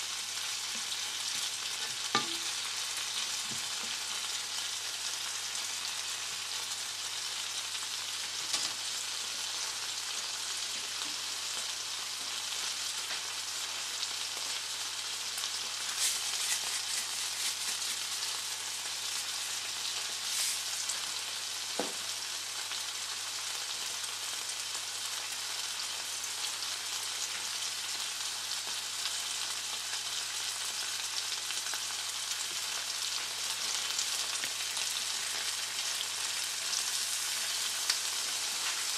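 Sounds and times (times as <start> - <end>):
tomatoes sizzling in oil: 0.0 - 38.9.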